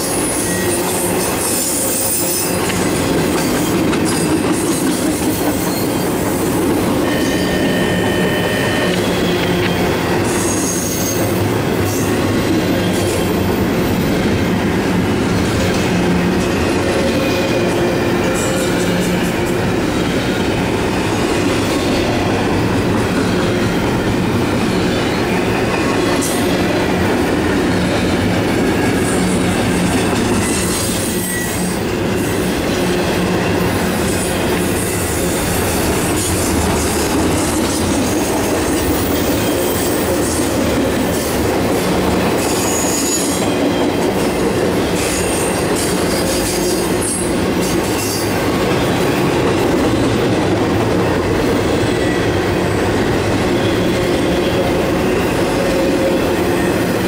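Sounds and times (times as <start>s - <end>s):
train wheels rumbling and clattering: 0.0s - 57.0s
high wheel squeals: 0.1s - 12.2s, 27.6s - 35.6s.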